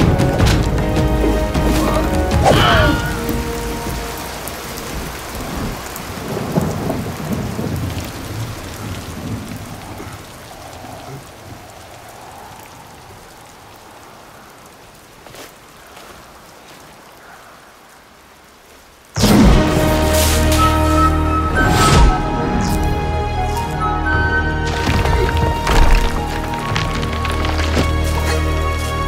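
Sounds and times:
heavy rain: 0.0 - 29.0
low rumble of thunder: 4.9 - 11.9.

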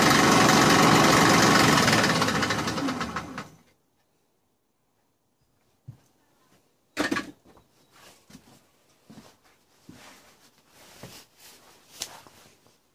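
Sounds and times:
knocks and clunks of handling: 6.9 - 7.7
rustling: 7.7 - 12.9.

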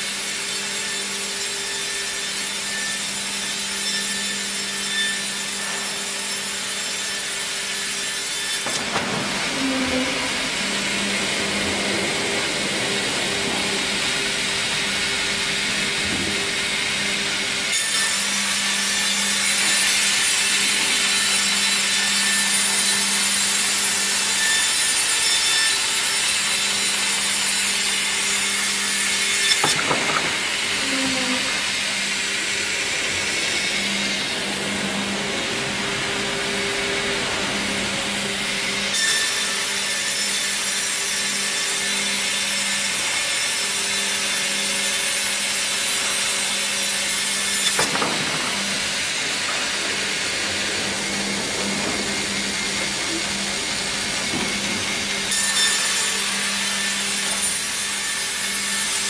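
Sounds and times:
electric motor hum: 9.3 - 17.7
saws cutting a log: 17.8 - 32.0.

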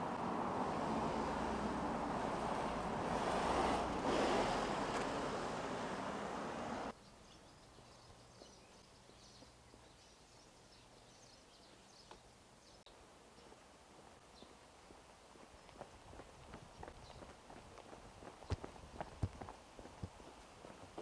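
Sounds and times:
car passing close by: 0.0 - 6.9
road traffic noise: 0.0 - 7.0.

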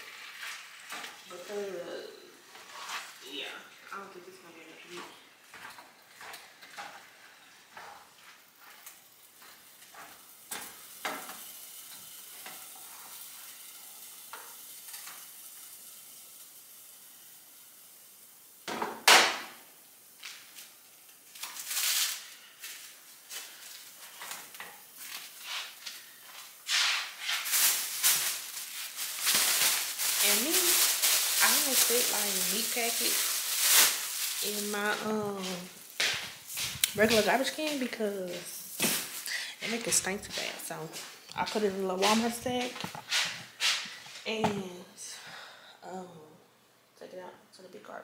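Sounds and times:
meat sizzling in a pan: 0.0 - 3.9, 5.3 - 40.4.

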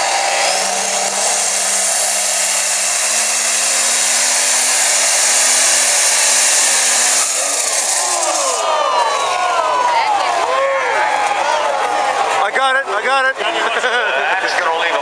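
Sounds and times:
tractor engine whining under load: 0.0 - 8.7.

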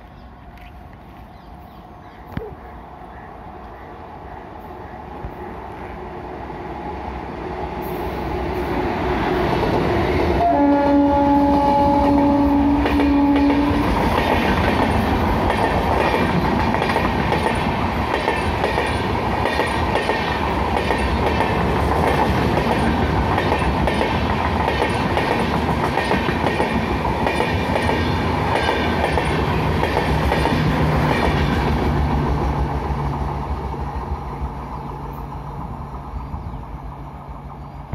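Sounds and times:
train horn: 10.4 - 14.0
train wheels clickety-clack: 11.9 - 34.2.

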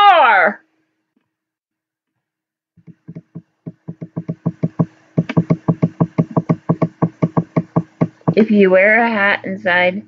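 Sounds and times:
faint steady hum: 0.0 - 10.0
rapid sharp knocks: 2.8 - 8.5.

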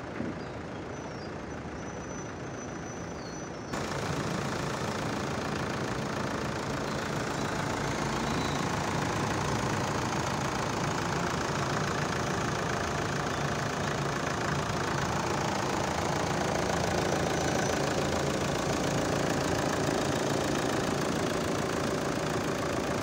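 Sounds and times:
diesel engine idling: 0.0 - 23.0.

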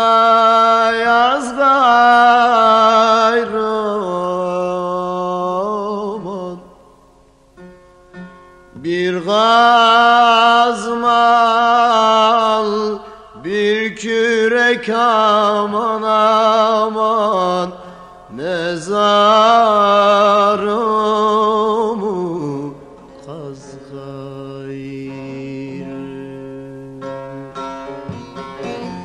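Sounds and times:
plucked lute accompaniment: 7.5 - 29.0.

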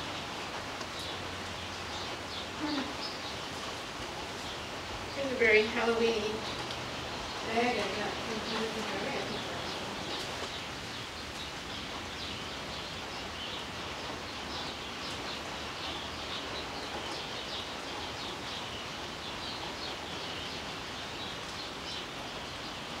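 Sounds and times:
heavy rain falling: 0.0 - 23.0.

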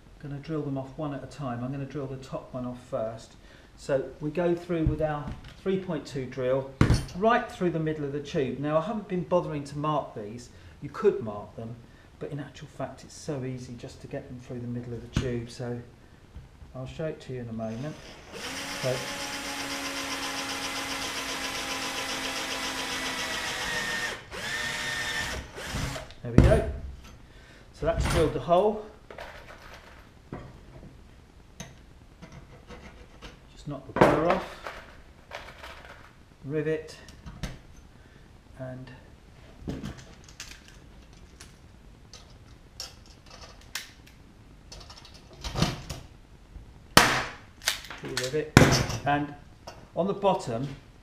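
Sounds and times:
cordless drill drilling metal: 17.9 - 26.2.

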